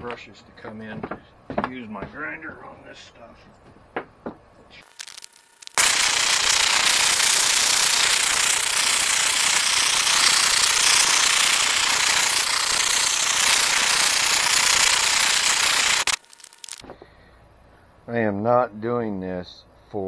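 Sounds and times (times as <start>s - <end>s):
propane torch flame rushing: 4.8s - 16.8s.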